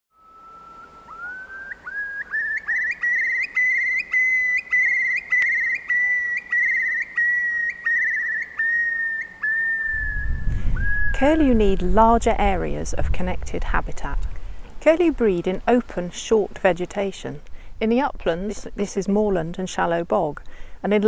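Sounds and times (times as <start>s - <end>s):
curlew bubbling song: 0.2s - 12.2s.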